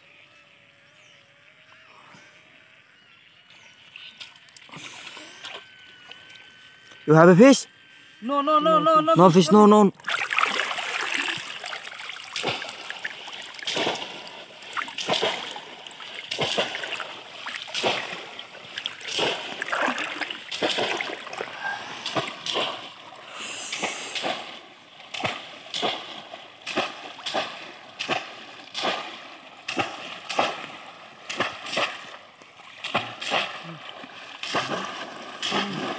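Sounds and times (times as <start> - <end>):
water sloshing around legs: 9.9 - 35.9
fish traps splashing into water: 10.0 - 35.9.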